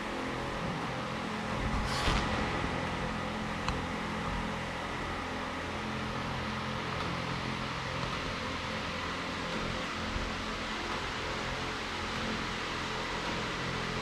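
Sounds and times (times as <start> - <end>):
low machine hum with hiss: 0.0 - 14.0.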